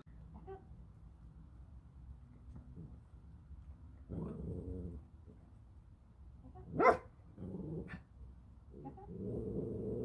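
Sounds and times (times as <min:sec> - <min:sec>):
small dog barking: 0:06.7 - 0:07.1.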